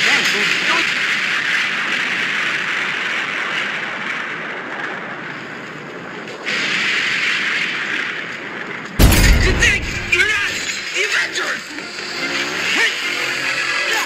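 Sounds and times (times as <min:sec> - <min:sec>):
loud explosion-like blast: 0:09.0 - 0:10.7.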